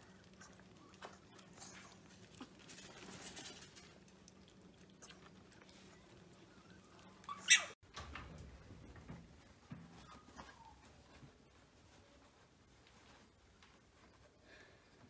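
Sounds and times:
puppies chewing and lapping: 0.0 - 11.9.

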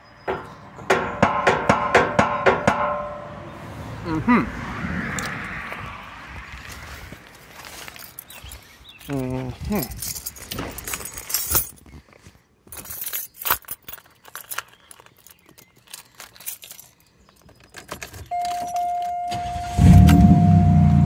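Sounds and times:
keys jangling: 7.7 - 12.1, 12.7 - 19.3
electronic warning tone: 18.3 - 21.0
loud car engine without muffler: 19.3 - 21.0.

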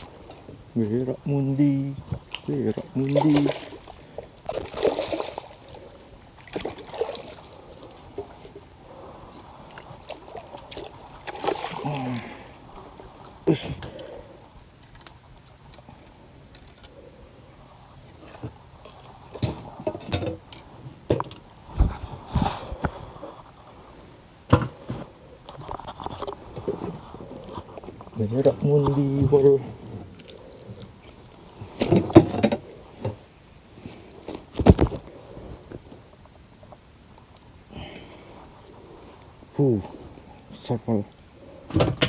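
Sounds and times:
insects droning: 0.0 - 42.0
short knocks and thumps: 24.5 - 27.7.

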